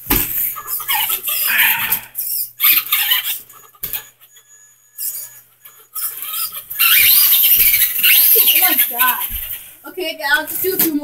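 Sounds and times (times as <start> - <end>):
toy truck motor whining: 2.2 - 9.6.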